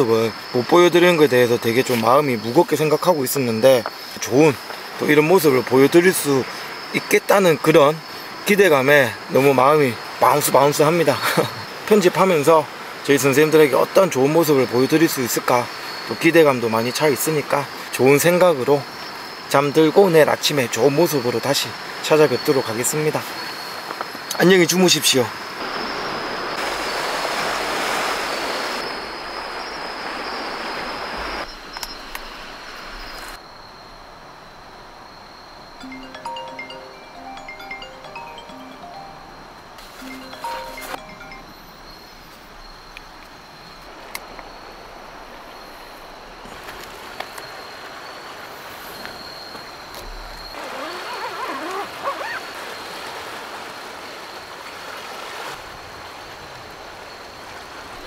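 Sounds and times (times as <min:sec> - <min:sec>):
sea waves washing ashore: 0:00.0 - 0:33.4, 0:43.5 - 0:58.0
high insect trill: 0:00.0 - 0:58.0
surf washing: 0:24.8 - 0:31.5.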